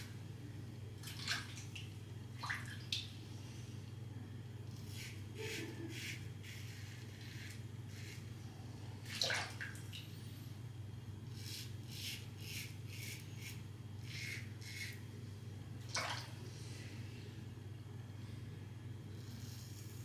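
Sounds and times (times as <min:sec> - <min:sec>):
low steady hum: 0:00.0 - 0:20.0
razor scraping stubble: 0:04.7 - 0:08.4, 0:11.3 - 0:15.0.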